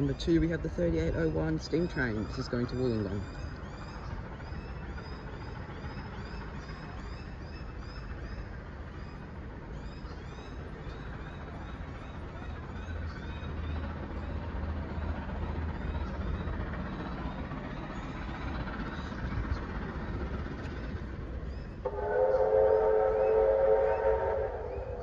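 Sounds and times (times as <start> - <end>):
birds chirping: 0.0 - 25.0
steam locomotive whistle: 21.8 - 25.0.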